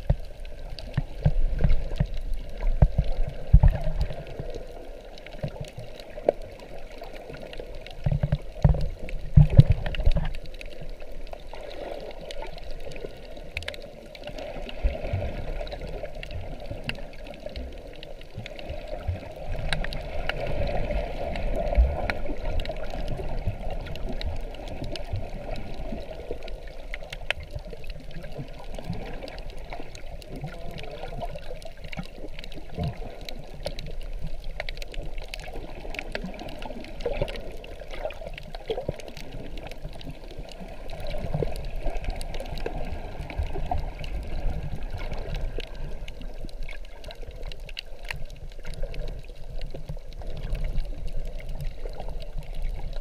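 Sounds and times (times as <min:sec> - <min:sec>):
small scattered clicks: 0:00.0 - 0:53.0
water sloshing underwater: 0:00.0 - 0:53.0.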